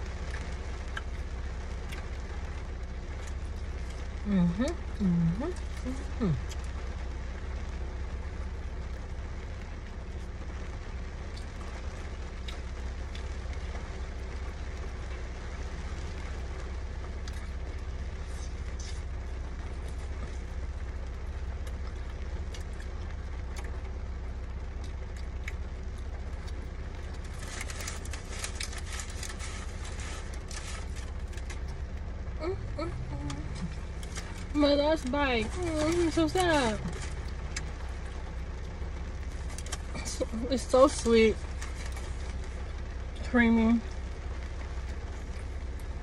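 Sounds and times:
car cabin hum: 0.0s - 46.0s
soft chewing: 11.3s - 13.6s, 17.2s - 40.3s, 40.9s - 43.2s
paper wrapper crackling: 27.1s - 31.8s, 33.5s - 38.0s, 40.8s - 42.5s.

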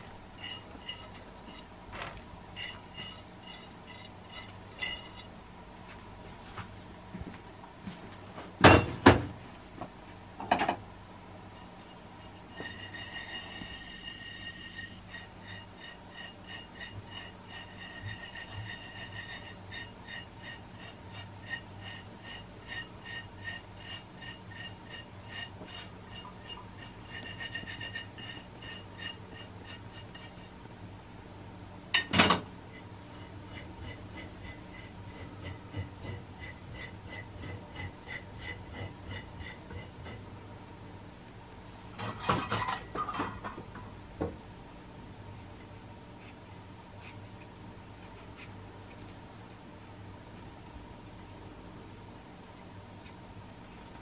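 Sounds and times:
tableware knocks: 8.6s - 9.4s, 32.0s - 32.5s.

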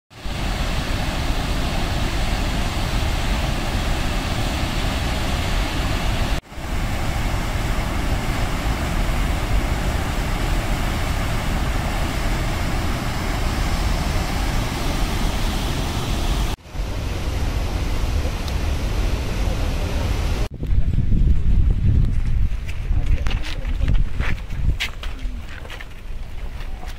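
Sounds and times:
water rushing over spillway: 0.1s - 20.5s.

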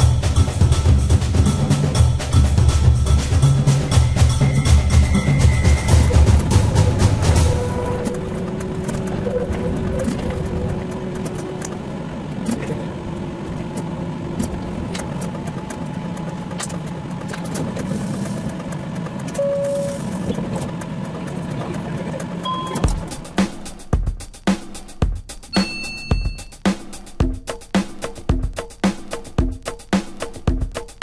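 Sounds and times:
road traffic: 0.0s - 23.9s
tram running on track: 0.0s - 23.9s, 25.5s - 26.6s.

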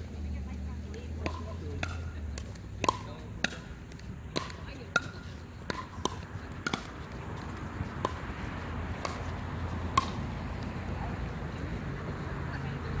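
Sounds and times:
road traffic rumble: 0.0s - 13.0s
pickleball being struck: 0.9s - 10.7s.

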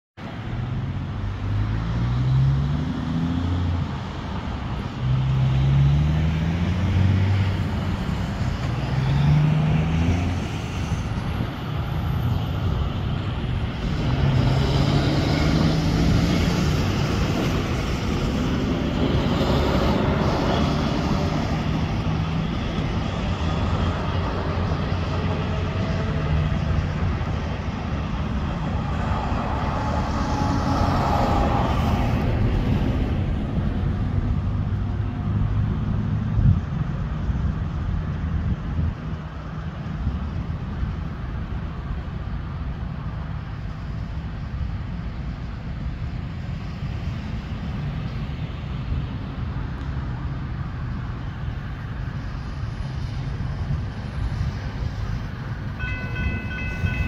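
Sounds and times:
rumble of passing traffic: 0.2s - 57.0s
truck accelerating through gears: 0.4s - 37.0s.

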